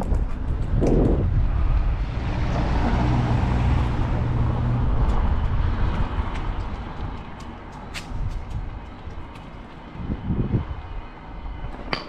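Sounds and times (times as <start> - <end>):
low rumble: 0.0 - 7.4
vehicle engine hum: 0.0 - 12.0.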